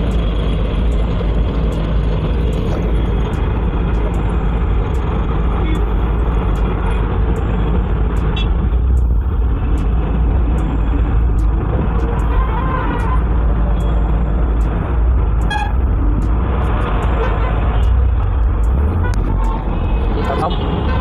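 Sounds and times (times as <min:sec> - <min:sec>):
road noise: 0:00.0 - 0:21.0
truck engine rumble: 0:00.0 - 0:21.0.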